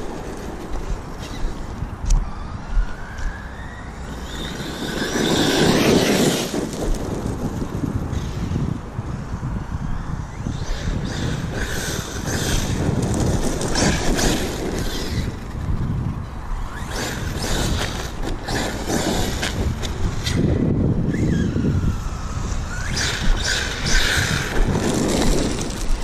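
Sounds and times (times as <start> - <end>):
wind rumble on microphone: 0.0 - 26.0
clicks of grit and stones: 23.8 - 26.0.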